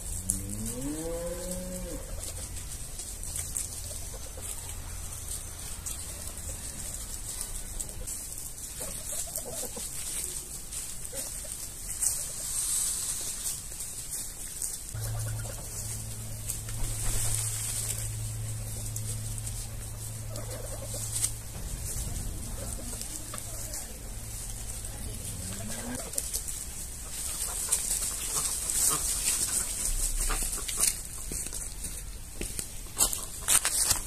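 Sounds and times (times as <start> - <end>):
steady low hum: 0.0 - 8.3, 12.4 - 34.0
rustling in dry leaves: 0.0 - 34.0
geese calling softly: 14.9 - 31.4.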